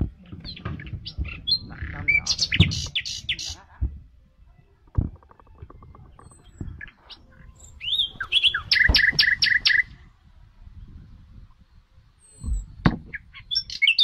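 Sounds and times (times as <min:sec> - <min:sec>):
bird calling and chirping: 0:00.4 - 0:03.7, 0:04.9 - 0:10.0, 0:12.2 - 0:14.0.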